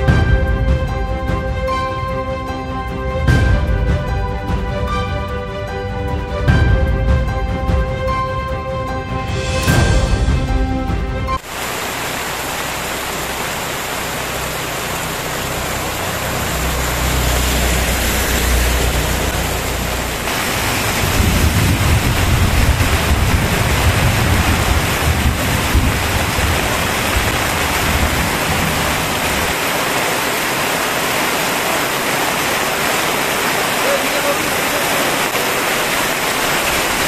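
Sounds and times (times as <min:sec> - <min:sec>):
heavy rain on road: 0:00.0 - 0:05.1, 0:11.3 - 0:37.0
low rumble: 0:12.8 - 0:29.5.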